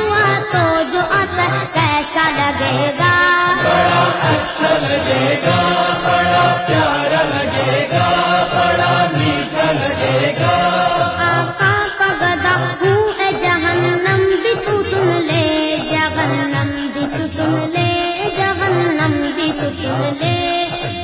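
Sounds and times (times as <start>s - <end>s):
steady drum beat: 0.1s - 20.4s
chorus singing in unison: 2.5s - 13.9s.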